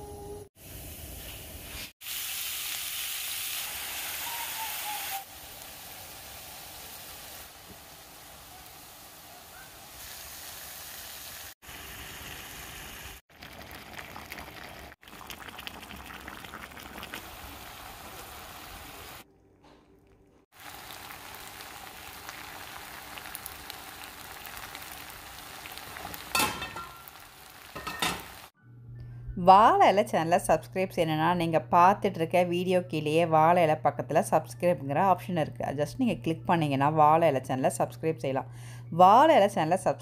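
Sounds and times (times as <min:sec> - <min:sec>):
food sizzling in a pot: 0:00.6 - 0:19.2, 0:20.5 - 0:28.5.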